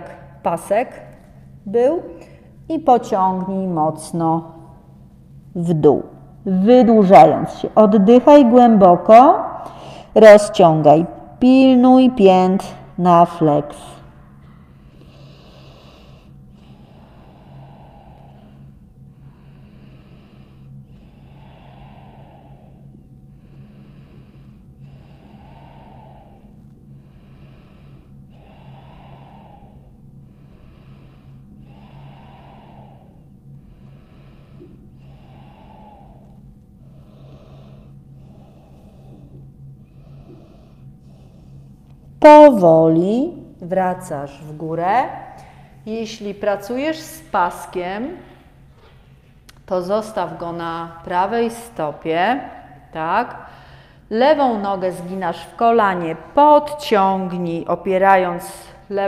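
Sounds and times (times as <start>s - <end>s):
low steady hum: 0.0s - 59.0s
woman breathing deeply: 9.5s - 10.2s, 13.8s - 42.2s, 44.3s - 56.6s.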